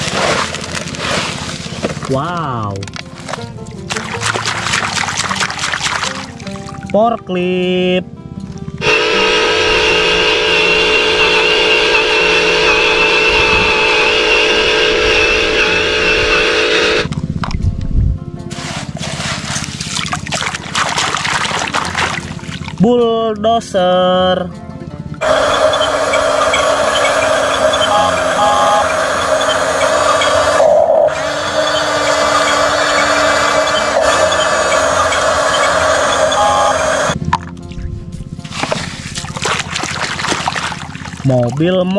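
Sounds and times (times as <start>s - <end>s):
blade pushing gravel: 0.0s - 2.1s, 18.5s - 22.4s, 38.4s - 41.0s
toy electric motor whining: 8.8s - 17.1s, 25.2s - 37.2s.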